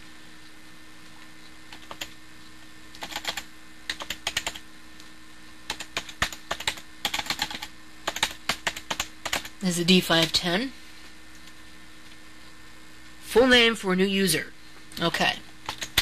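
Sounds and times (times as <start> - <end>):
steady low hum: 0.0 - 16.0
typing on computer keyboard: 3.0 - 4.6, 5.7 - 9.5, 15.6 - 16.0.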